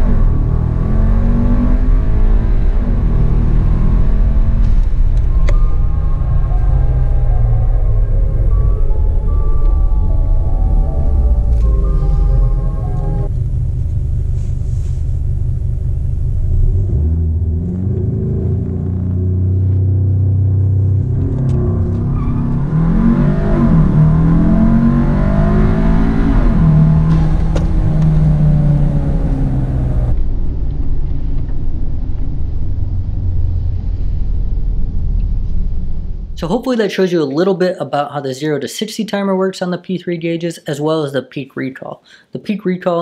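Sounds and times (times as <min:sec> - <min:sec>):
car engine accelerating hard: 0:00.0 - 0:31.1.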